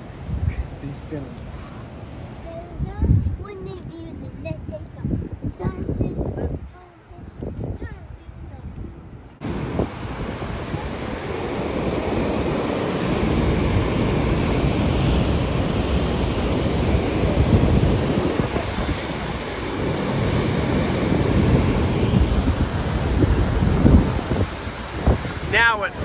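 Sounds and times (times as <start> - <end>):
wind buffeting microphone: 0.0 - 26.0
water rushing from dam outlet: 9.4 - 26.0.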